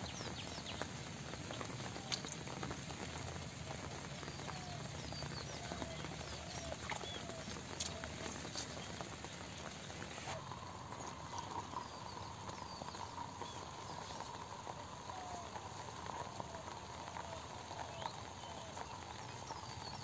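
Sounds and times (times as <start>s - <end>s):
faint steady hum: 0.0s - 20.0s
steady hiss: 0.0s - 20.0s
bird chirps: 4.2s - 20.0s
footsteps in wet mud: 4.5s - 20.0s.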